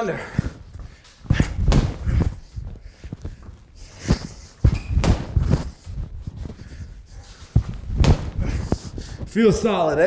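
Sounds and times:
footwork on concrete floor: 0:00.0 - 0:10.0
boxing gloves hitting heavy bag: 0:01.3 - 0:02.4, 0:04.0 - 0:05.7, 0:07.6 - 0:08.8.

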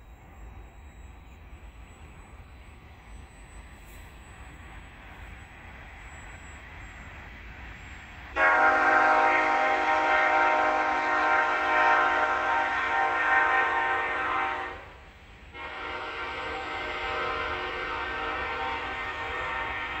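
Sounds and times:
train horn blasts: 0:08.3 - 0:20.0.

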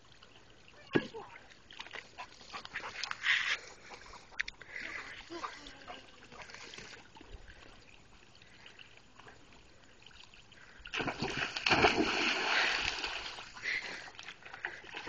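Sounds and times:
water splashing and sloshing: 0:00.0 - 0:15.0
dog splashing into pool: 0:10.9 - 0:13.6.

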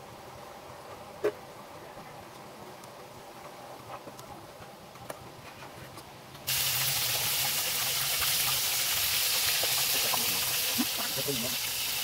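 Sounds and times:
fish sizzling in hot oil: 0:06.5 - 0:12.0.

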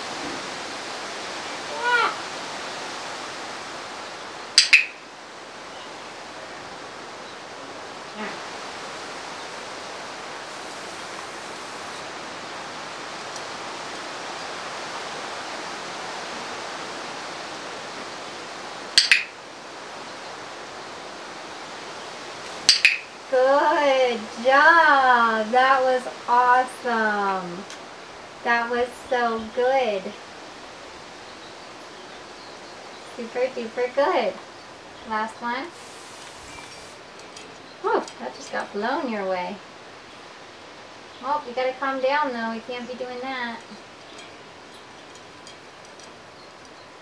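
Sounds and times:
steady background hiss: 0:00.0 - 0:47.0.

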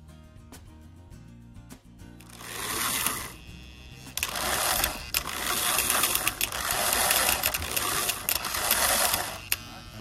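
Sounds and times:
toy train motor whirring: 0:02.2 - 0:10.0
sharp clicks: 0:04.1 - 0:09.7.

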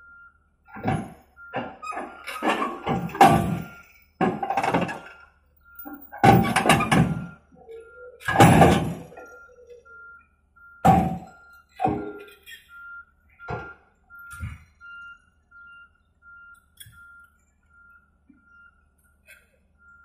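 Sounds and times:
excavator tracks clanking on steel ramp: 0:00.7 - 0:05.2, 0:05.8 - 0:07.4, 0:08.2 - 0:09.4, 0:10.8 - 0:12.7.

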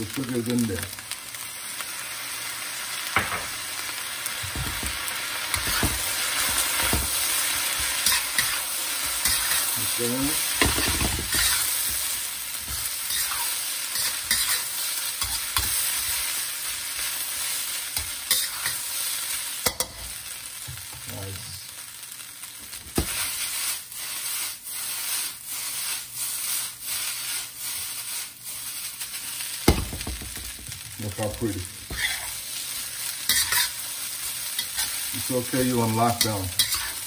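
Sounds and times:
rice sizzling in a wok: 0:00.0 - 0:37.0
spatula scraping a wok: 0:04.6 - 0:20.2, 0:23.0 - 0:29.6, 0:30.7 - 0:37.0.

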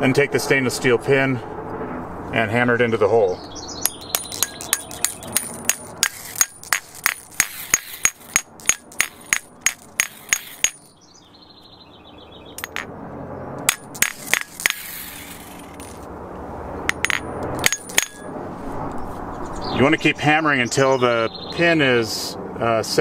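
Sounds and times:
hammer striking metal pin: 0:03.8 - 0:11.0, 0:12.6 - 0:12.9, 0:13.6 - 0:14.8, 0:16.9 - 0:18.3.

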